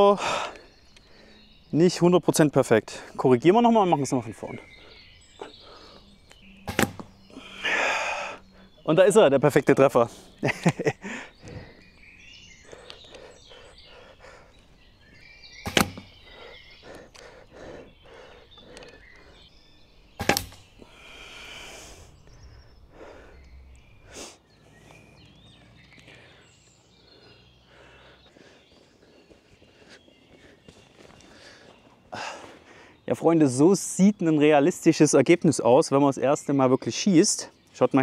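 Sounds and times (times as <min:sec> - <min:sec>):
bow shot cracks: 0:06.6 - 0:07.1, 0:15.6 - 0:16.2, 0:20.2 - 0:20.7.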